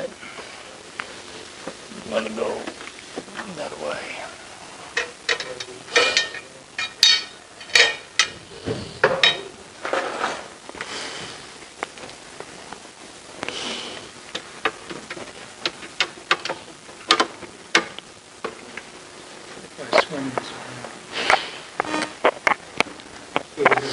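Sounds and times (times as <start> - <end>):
metal poles knocking and scraping: 4.9 - 10.5.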